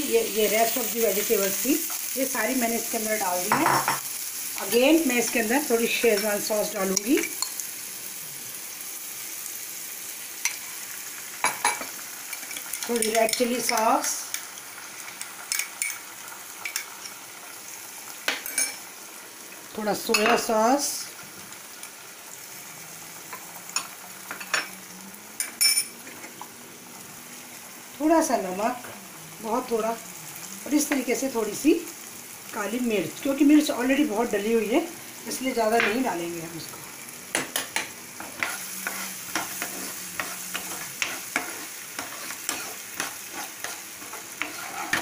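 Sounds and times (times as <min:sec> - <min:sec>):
vegetables sizzling in a pan: 0:00.0 - 0:45.0
spatula scraping frying pan: 0:37.5 - 0:45.0.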